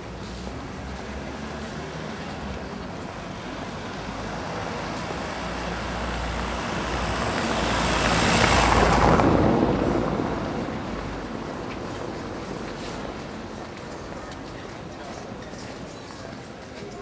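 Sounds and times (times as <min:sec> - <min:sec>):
vehicle passing by: 0:00.2 - 0:13.8.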